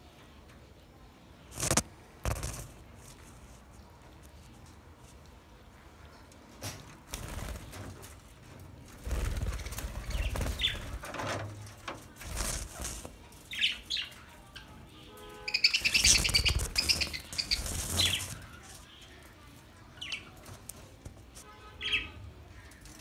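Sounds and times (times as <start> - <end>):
wings fluttering: 1.5 - 3.5, 6.9 - 14.0, 15.5 - 18.9
budgerigars chirping: 15.5 - 18.4
fast chattering chirps: 15.5 - 18.8.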